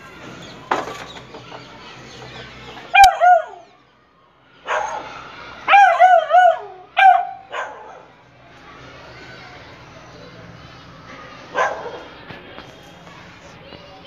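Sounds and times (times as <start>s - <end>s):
puppy barking and yipping: 2.9s - 3.6s, 4.7s - 5.1s, 5.7s - 8.0s, 11.5s - 12.1s.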